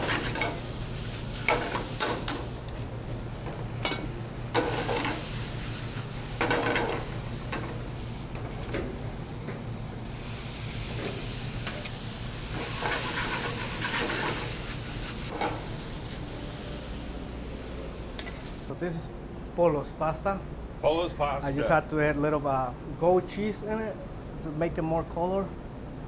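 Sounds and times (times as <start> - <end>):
food sizzling in pan: 0.0 - 2.6, 3.3 - 18.7
steady low hum: 0.0 - 26.0.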